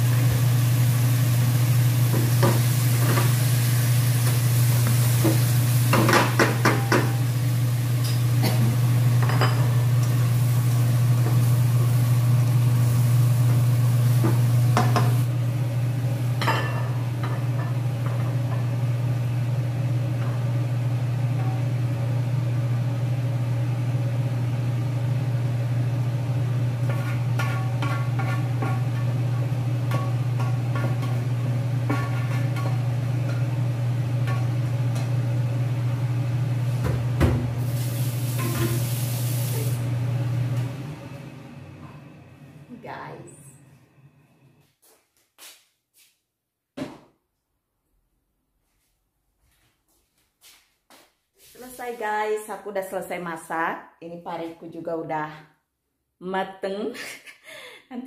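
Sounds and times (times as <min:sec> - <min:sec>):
food sizzling in a frying pan: 0:00.0 - 0:22.3, 0:25.6 - 0:40.4
spatula scraping a pan: 0:26.8 - 0:29.2, 0:31.8 - 0:32.9
spatula stirring and knocking: 0:26.8 - 0:33.4.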